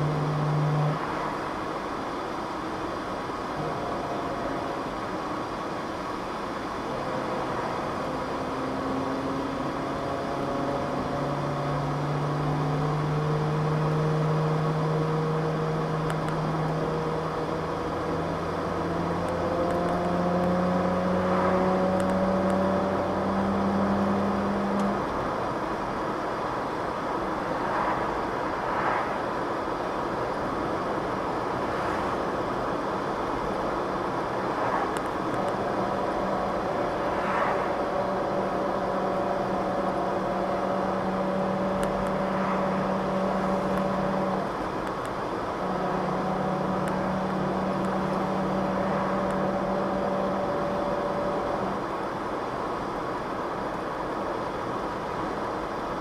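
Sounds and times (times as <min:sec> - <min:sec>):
rear differential howl: 0:00.0 - 0:01.7, 0:03.4 - 0:25.9, 0:33.0 - 0:53.2
car road and engine noise: 0:00.0 - 0:56.0.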